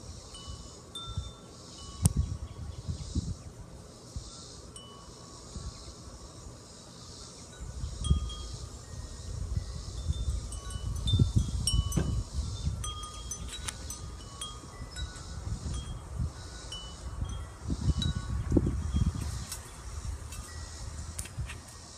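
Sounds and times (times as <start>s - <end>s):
wind chimes ringing: 0.3s - 2.2s, 4.3s - 5.6s, 7.5s - 19.6s, 20.2s - 21.0s
low rumble on microphone: 1.9s - 4.3s, 7.6s - 21.7s.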